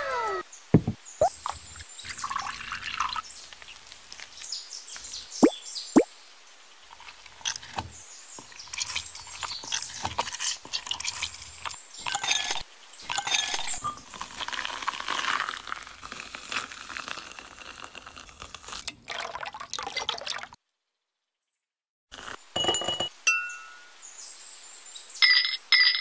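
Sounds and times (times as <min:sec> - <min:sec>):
ice cubes clattering into glass jar: 0:08.6 - 0:15.9
metal spoon knocking on glass: 0:22.6 - 0:23.6.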